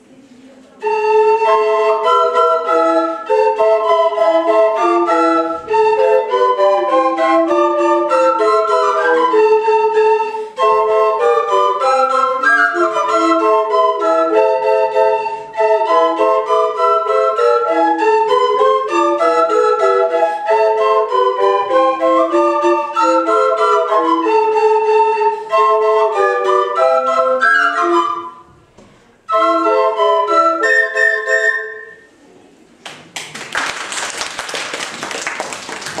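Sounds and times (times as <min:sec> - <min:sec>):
wooden flute ensemble playing: 0:00.7 - 0:32.2
applause: 0:32.8 - 0:36.0.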